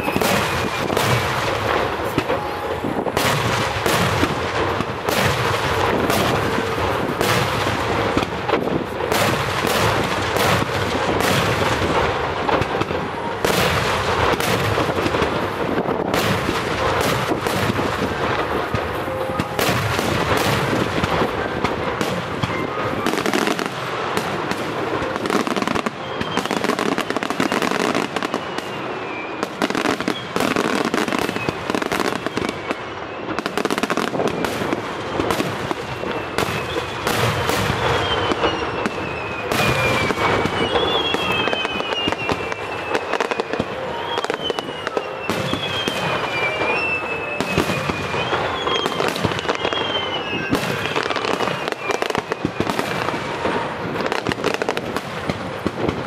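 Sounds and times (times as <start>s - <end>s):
high falling whistles: 0.0s - 1.2s, 35.8s - 53.1s
firework shells bursting with crackling: 0.0s - 56.0s.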